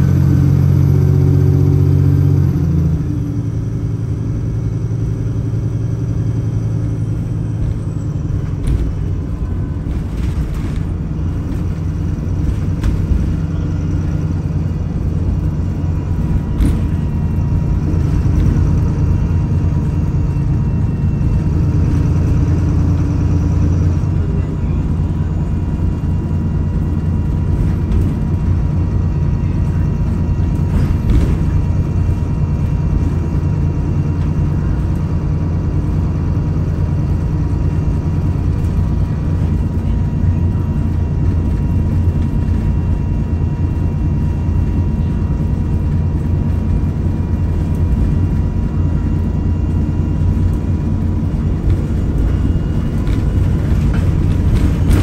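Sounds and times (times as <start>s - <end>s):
bus engine and road rumble: 0.0s - 55.0s
body rattles and knocks: 7.4s - 22.4s, 29.9s - 34.5s, 38.2s - 55.0s.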